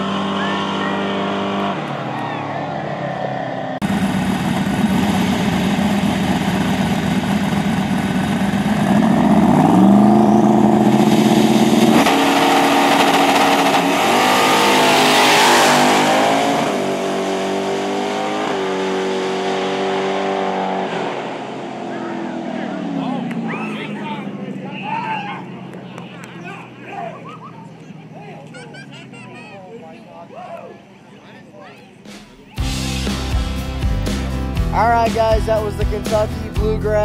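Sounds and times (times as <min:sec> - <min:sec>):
race car engine revving: 0:00.0 - 0:28.5.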